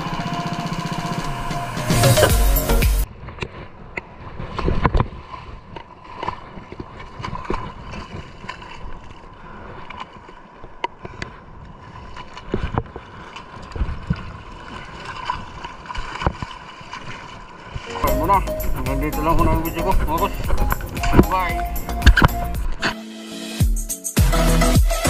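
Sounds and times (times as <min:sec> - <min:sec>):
seawater sloshing and splashing: 0:03.1 - 0:22.9.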